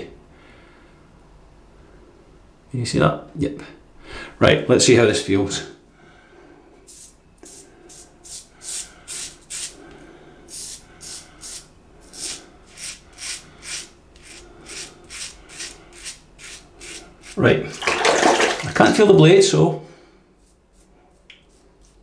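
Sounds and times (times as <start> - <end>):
razor scraping stubble: 10.5 - 17.4, 20.4 - 22.0.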